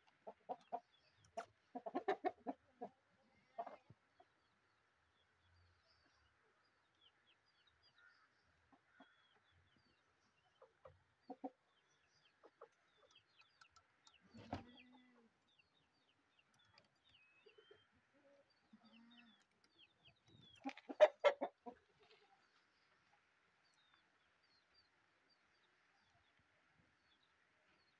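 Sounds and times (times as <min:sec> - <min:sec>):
chickens clucking: 0:00.1 - 0:04.4, 0:10.4 - 0:15.3, 0:18.8 - 0:22.3.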